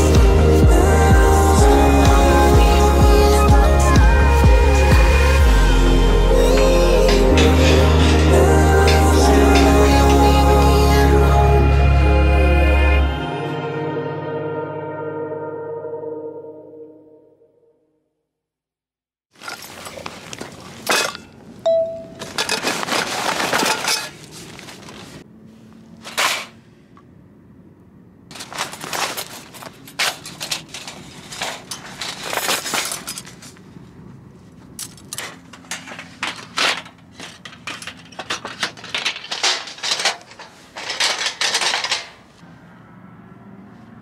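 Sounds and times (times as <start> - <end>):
steel rods clinking: 4.7 - 11.2, 20.6 - 24.3, 28.3 - 33.6, 34.8 - 42.4
thin metal sheet rattling: 6.4 - 10.7, 22.2 - 25.1, 28.3 - 33.4, 35.0 - 42.4.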